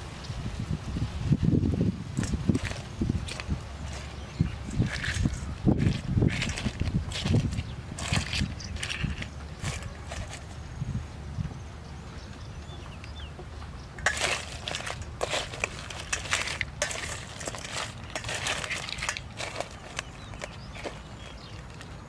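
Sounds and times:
crab shells clicking on metal: 2.2s - 10.4s, 14.0s - 22.0s.

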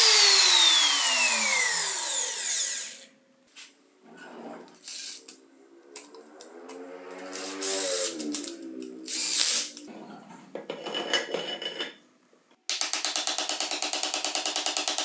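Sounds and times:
electric screwdriver running: 0.0s - 3.0s, 7.3s - 8.5s, 9.1s - 9.8s.

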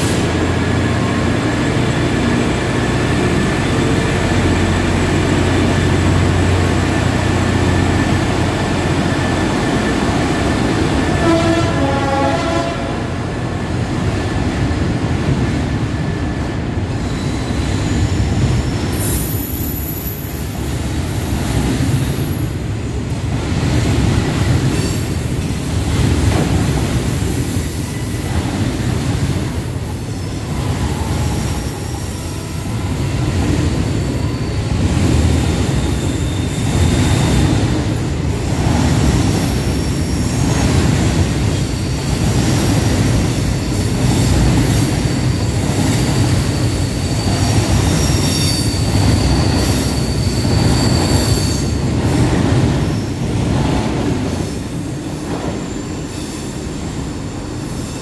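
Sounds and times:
train wheels rumbling: 0.0s - 58.0s
high wheel squeal: 16.9s - 23.0s, 34.0s - 37.5s, 39.4s - 40.6s, 45.3s - 52.1s.

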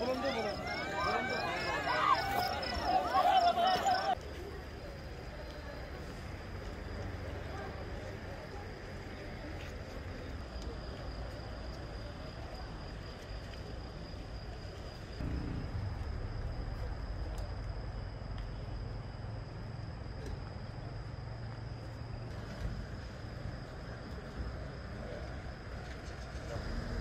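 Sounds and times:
crickets trilling: 0.0s - 27.0s
low background rumble: 15.2s - 20.2s.

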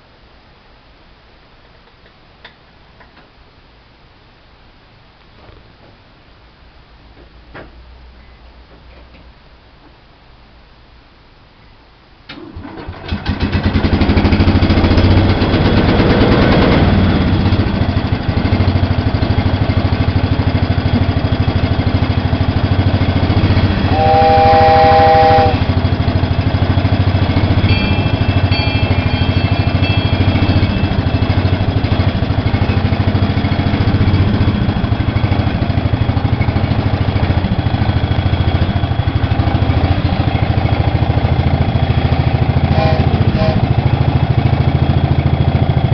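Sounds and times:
lawn tractor engine starting: 12.3s - 23.9s
horn: 23.9s - 25.6s, 42.7s - 43.8s.

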